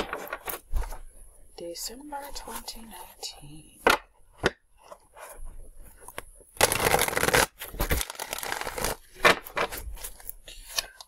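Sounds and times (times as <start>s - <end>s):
cards being shuffled: 6.0s - 11.0s.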